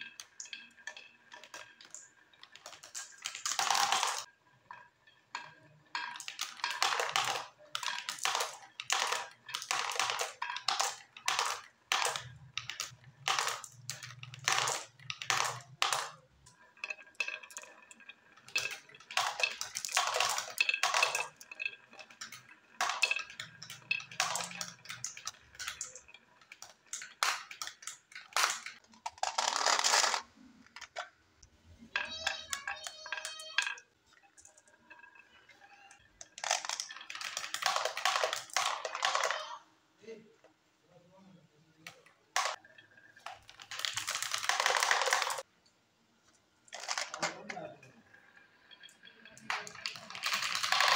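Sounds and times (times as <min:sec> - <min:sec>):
marbles clacking down wooden track: 0:00.0 - 0:31.2, 0:31.8 - 0:39.6, 0:41.7 - 0:45.5, 0:46.7 - 0:50.9
marbles rolling along wood: 0:00.0 - 0:39.6, 0:41.7 - 0:45.5, 0:46.6 - 0:50.9.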